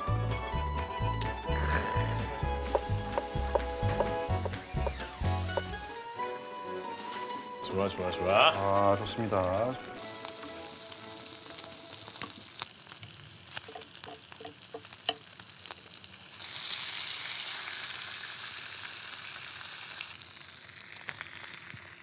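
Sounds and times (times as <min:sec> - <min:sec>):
meat sizzling on a griddle: 0:02.6 - 0:22.0.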